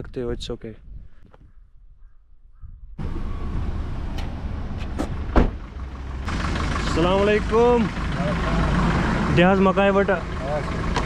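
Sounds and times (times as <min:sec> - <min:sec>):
road and wind noise: 0:00.0 - 0:11.0
motorcycle engine: 0:03.0 - 0:11.0.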